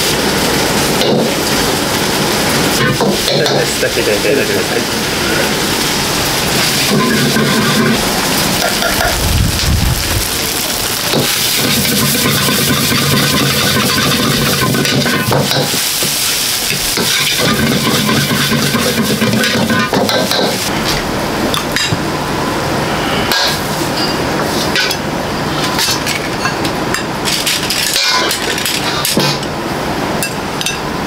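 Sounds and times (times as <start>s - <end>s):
steady rushing hiss: 0.0s - 21.2s
food sizzling: 0.0s - 31.0s
metal utensil scraping a pan: 6.6s - 8.0s, 11.2s - 15.8s, 17.0s - 20.6s.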